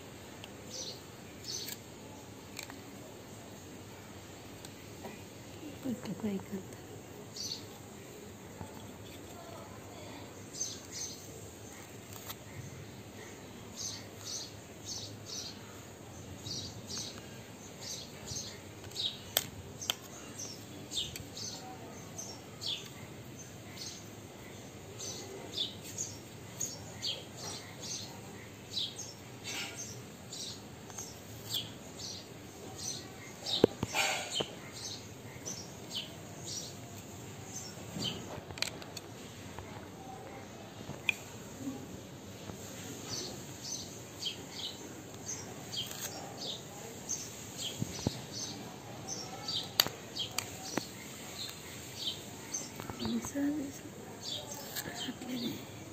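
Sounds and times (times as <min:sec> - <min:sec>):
low background hiss: 0:00.0 - 0:27.0
small birds chirping: 0:00.0 - 0:55.9.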